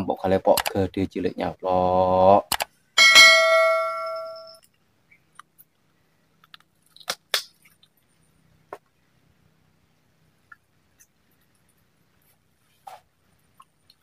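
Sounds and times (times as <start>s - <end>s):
ringing bell-like chime: 3.0s - 4.6s.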